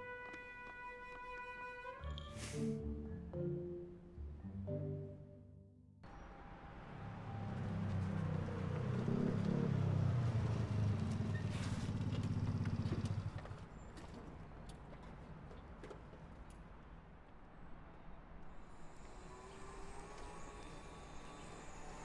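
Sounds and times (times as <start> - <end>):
motorcycle engine running: 8.4 - 13.6.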